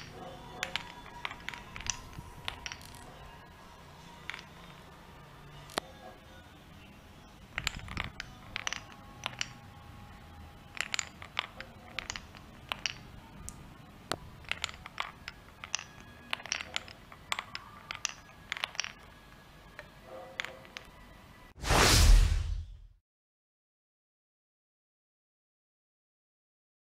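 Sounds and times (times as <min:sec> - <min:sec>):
marbles clattering in wooden run: 0:00.0 - 0:03.2, 0:04.2 - 0:04.9, 0:07.5 - 0:09.6, 0:10.7 - 0:13.6, 0:14.2 - 0:19.2.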